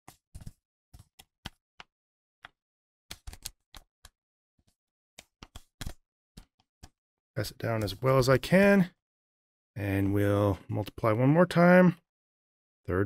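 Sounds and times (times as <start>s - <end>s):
paper folding crackles: 0.1s - 1.6s.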